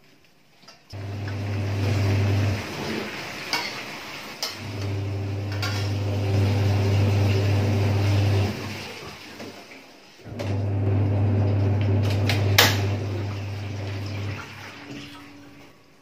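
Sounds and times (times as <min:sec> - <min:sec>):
frying sizzle: 0:01.0 - 0:10.2.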